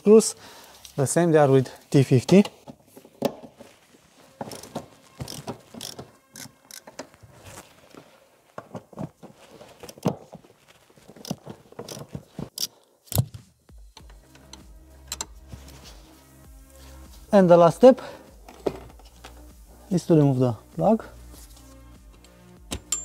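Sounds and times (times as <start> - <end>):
ratchet wrench clicking: 4.5 - 6.9.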